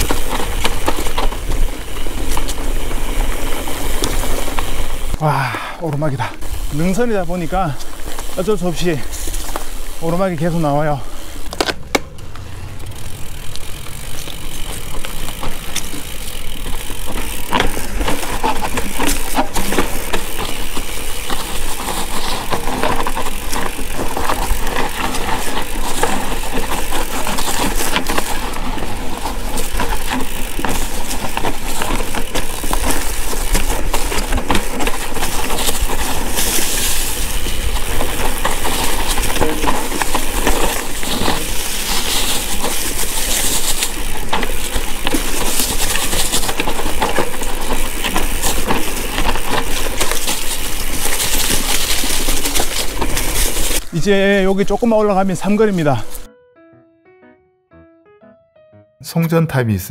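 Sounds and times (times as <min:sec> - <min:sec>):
bike clicks and rattles: 0:00.0 - 0:56.3
tyres crunching over dirt: 0:00.0 - 0:56.3
low rumble on microphone: 0:12.0 - 0:15.5.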